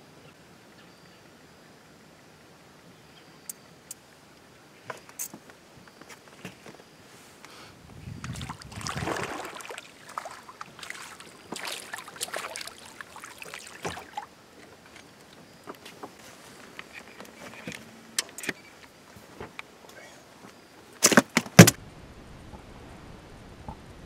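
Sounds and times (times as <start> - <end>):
fish splashing in water: 8.2 - 14.4.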